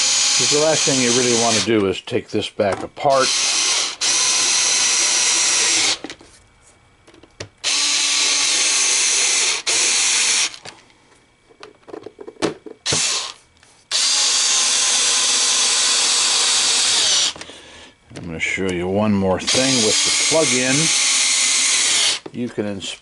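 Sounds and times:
cordless screwdriver motor whining: 0.0 - 1.7, 3.1 - 6.0, 7.6 - 10.6, 12.8 - 17.4, 19.5 - 22.2.

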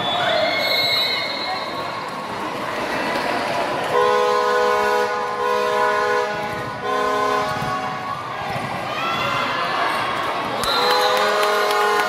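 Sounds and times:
crowd noise: 0.0 - 12.0
loud horn blasts: 3.9 - 8.0, 10.7 - 12.0.

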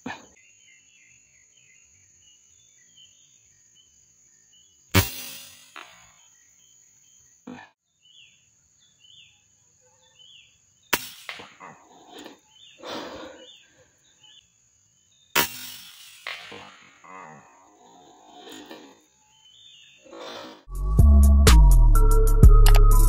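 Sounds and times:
air rifle shots: 5.0 - 5.9.

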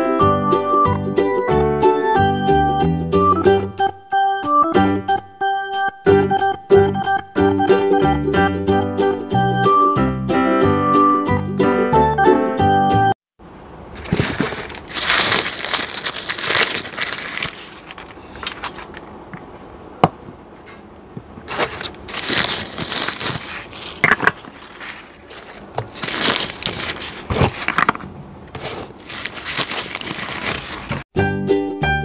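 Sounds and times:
packing paper rustling: 13.9 - 19.0, 21.4 - 31.1
glass bowls clinking: 24.0 - 24.5, 27.6 - 28.1.

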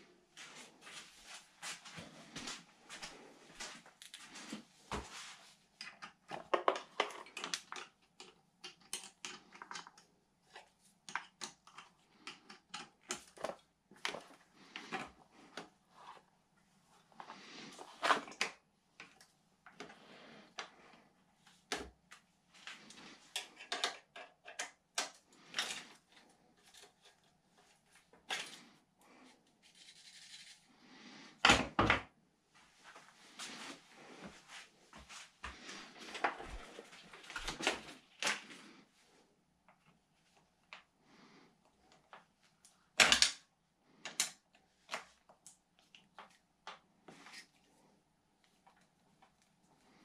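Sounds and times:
tool and cable clicks and scrapes: 17.2 - 28.7.

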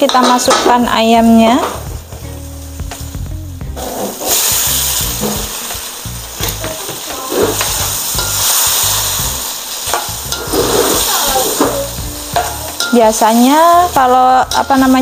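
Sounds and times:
sauce sizzling and bubbling: 0.7 - 15.0
metal spatula scraping wok: 3.8 - 15.0.

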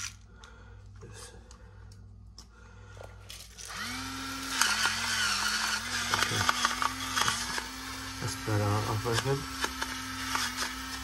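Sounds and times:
grinder motor whine: 3.6 - 11.0.

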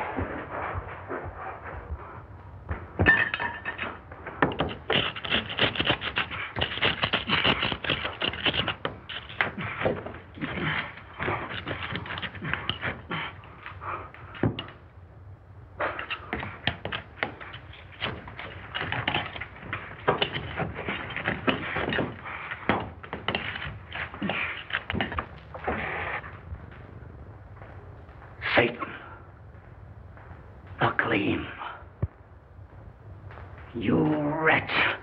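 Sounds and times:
brick knocking and scraping on brick: 3.0 - 13.7, 14.3 - 14.8, 15.8 - 26.3.

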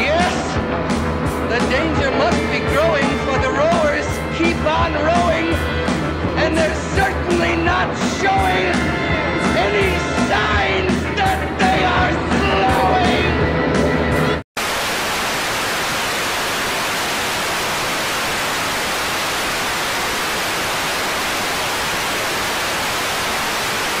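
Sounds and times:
music with singing: 0.0 - 14.4
static hiss: 14.6 - 24.0.

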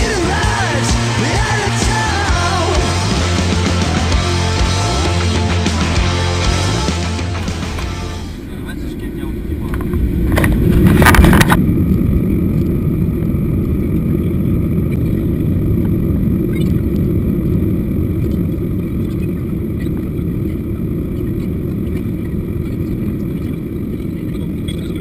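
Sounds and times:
jet engine cabin rumble: 7.1 - 25.0.

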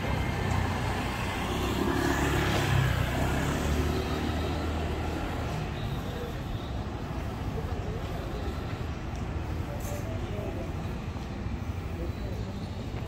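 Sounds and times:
vehicle passing by: 0.0 - 5.8.

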